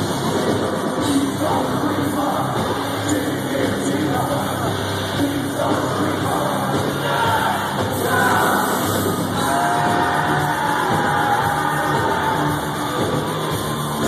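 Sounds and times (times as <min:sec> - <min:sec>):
person singing: 0:00.0 - 0:13.7
live heavy metal band: 0:00.0 - 0:14.0.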